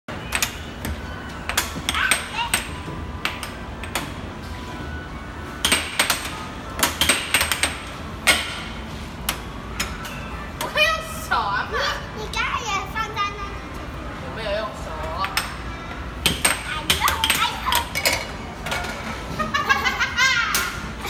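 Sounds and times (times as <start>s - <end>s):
air hockey puck clacking: 5.6s - 8.7s, 16.2s - 19.0s.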